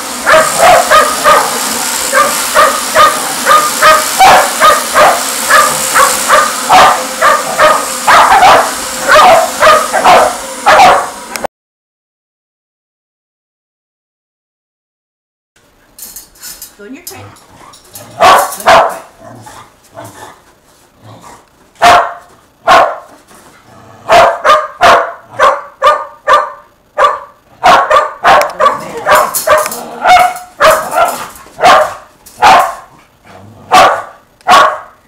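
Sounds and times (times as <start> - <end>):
dog barking: 0.2 - 11.2, 18.2 - 19.1, 21.8 - 23.1, 24.1 - 32.9, 33.7 - 35.0.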